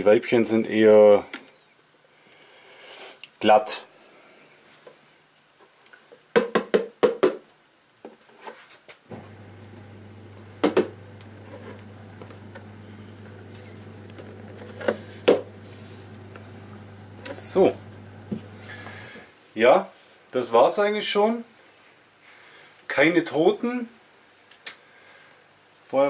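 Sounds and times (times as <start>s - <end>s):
low steady hum: 9.1s - 19.2s.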